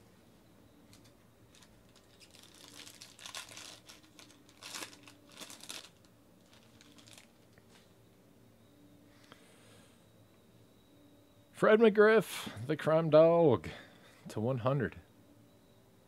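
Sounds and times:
foil wrapper crinkling: 1.5 - 7.6.

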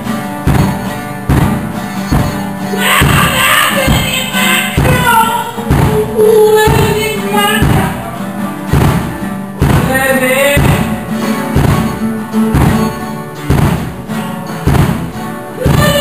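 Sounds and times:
acoustic guitar strumming: 0.0 - 16.0
drum kit beat: 0.0 - 16.0
heavy drum hits: 0.4 - 8.0, 8.7 - 16.0
person singing: 2.2 - 8.5, 9.6 - 11.3, 15.5 - 16.0.

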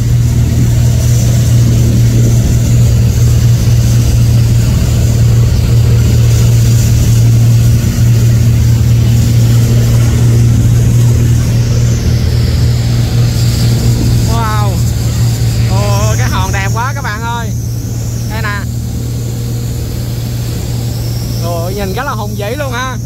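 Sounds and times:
boat engine droning: 0.0 - 23.0
steady hiss: 0.0 - 23.0.

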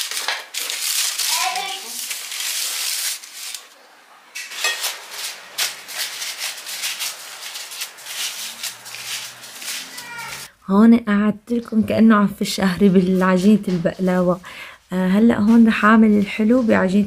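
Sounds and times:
pastry sheets crackling torn by hand: 0.0 - 3.7, 4.8 - 10.5
parchment paper rustling: 0.0 - 10.5.

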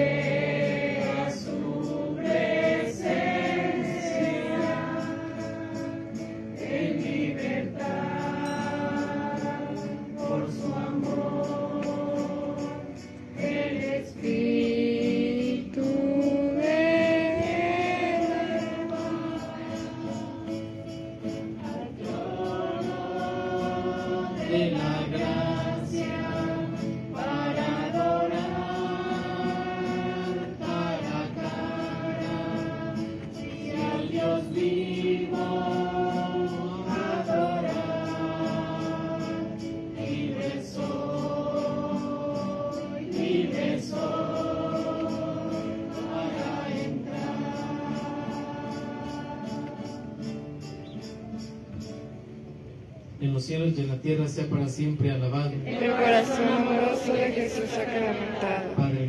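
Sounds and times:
voices singing a slow hymn: 0.0 - 52.9, 55.5 - 59.0.

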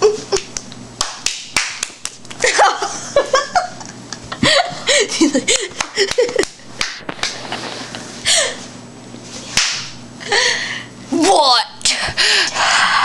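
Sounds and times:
sharp slap-like crack: 1.0 - 2.2, 6.8 - 7.4, 9.6 - 10.0
people giggling: 2.4 - 6.6.

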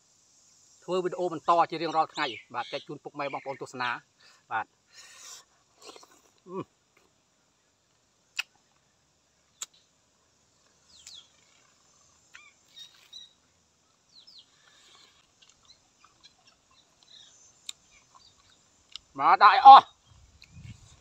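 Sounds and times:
quiet outdoor ambience: 0.0 - 21.0
bird chirps: 1.2 - 3.9, 10.8 - 18.7.

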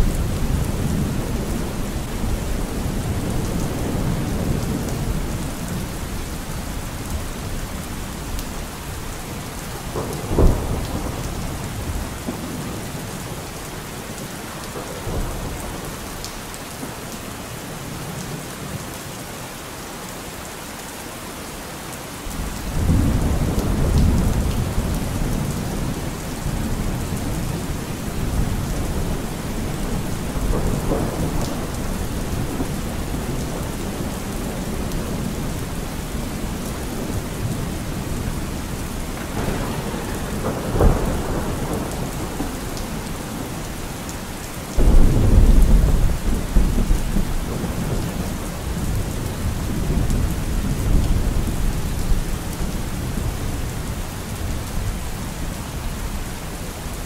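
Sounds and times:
steady rain: 0.0 - 57.0
low roll of thunder: 9.8 - 12.8, 22.4 - 43.8, 44.7 - 53.4
thunder crack: 39.2 - 42.6.

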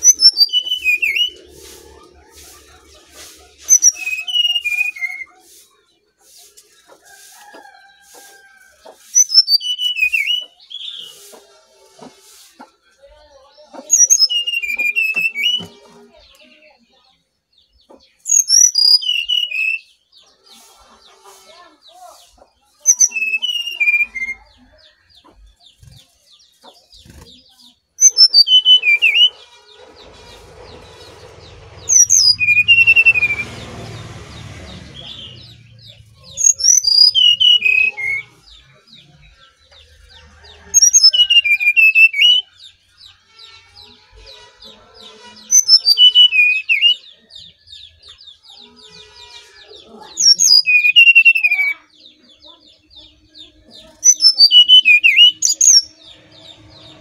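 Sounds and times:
bird singing whistled notes: 0.0 - 1.4, 3.7 - 5.3, 9.2 - 11.2, 14.0 - 15.7, 18.2 - 20.0, 28.0 - 29.4, 36.3 - 38.4, 54.0 - 56.1.

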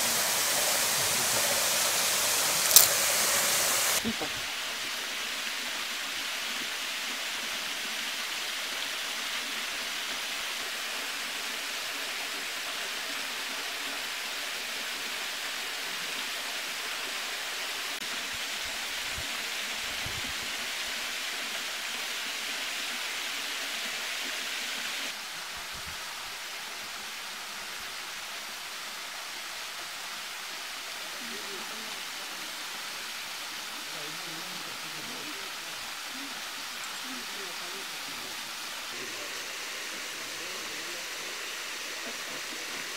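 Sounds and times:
river water rushing: 0.0 - 4.8, 36.1 - 42.9.

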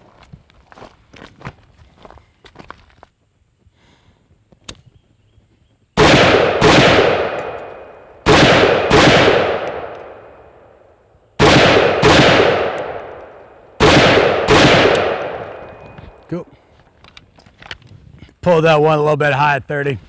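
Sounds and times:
rifle shots: 6.0 - 10.6, 11.4 - 16.0.

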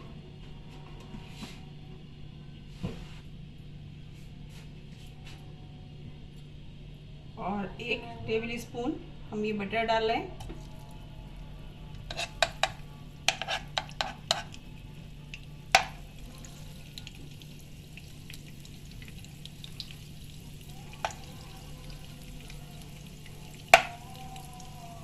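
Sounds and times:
butter sizzling in oil: 15.8 - 25.0.

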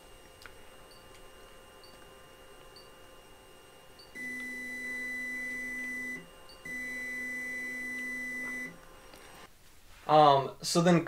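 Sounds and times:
printer electronic tones: 3.9 - 9.5.

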